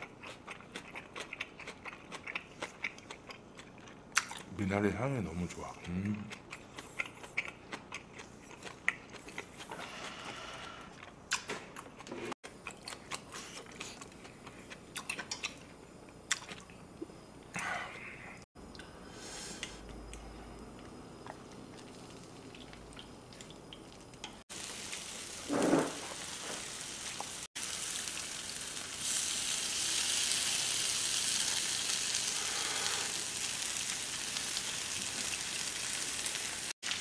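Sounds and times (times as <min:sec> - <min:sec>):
meat sizzling on a grill pan: 0:24.5 - 0:37.0.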